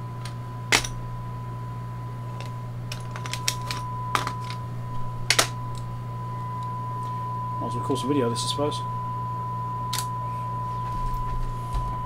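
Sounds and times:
low radio hum: 0:00.0 - 0:12.0
steady test tone: 0:03.2 - 0:12.0.

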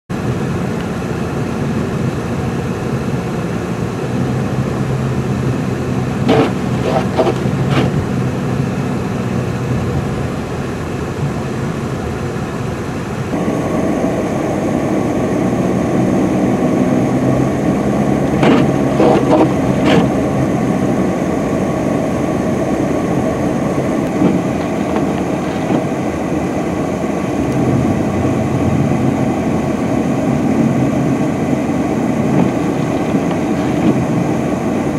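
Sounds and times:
truck engine droning: 0:00.1 - 0:34.9
tyres churning through snow: 0:00.1 - 0:34.9
wind noise: 0:13.3 - 0:34.9.

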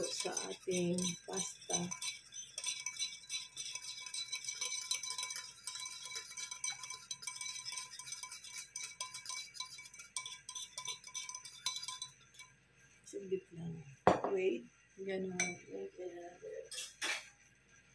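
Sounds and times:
wire whisk clicking in bowl: 0:00.0 - 0:12.1.

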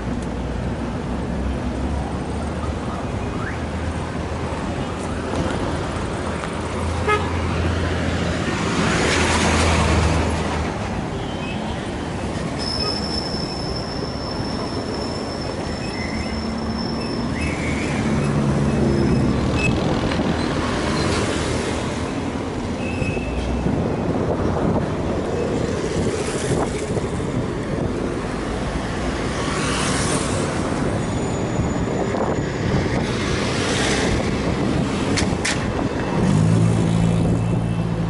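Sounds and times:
street traffic passing: 0:00.0 - 0:38.0
thin high squeal: 0:12.6 - 0:17.6.

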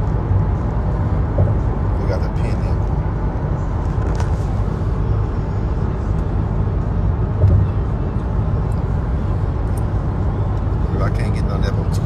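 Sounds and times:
car cabin rumble: 0:00.0 - 0:12.0
car bump: 0:01.3 - 0:01.7, 0:07.3 - 0:07.8.

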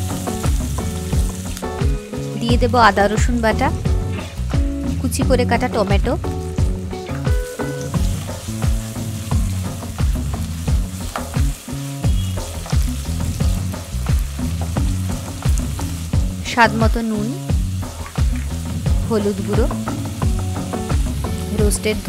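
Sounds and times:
background music: 0:00.0 - 0:22.0
food sizzling in hot oil: 0:00.0 - 0:22.0.

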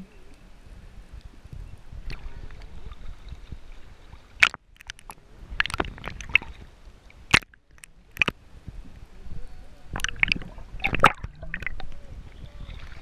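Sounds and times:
sea water sloshing: 0:02.0 - 0:08.4, 0:09.8 - 0:13.0
sharp water splashes: 0:04.0 - 0:08.4, 0:09.9 - 0:11.9.

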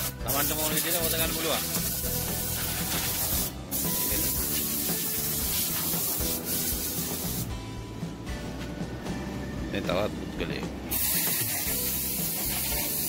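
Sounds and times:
compressed-air blow gun hissing: 0:00.0 - 0:07.5, 0:10.9 - 0:13.0.

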